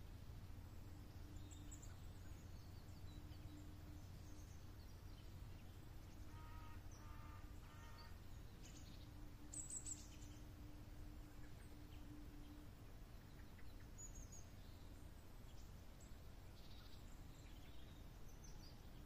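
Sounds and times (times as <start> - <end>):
faint open-air ambience: 0.0 - 19.0
bird chirps: 1.2 - 10.5.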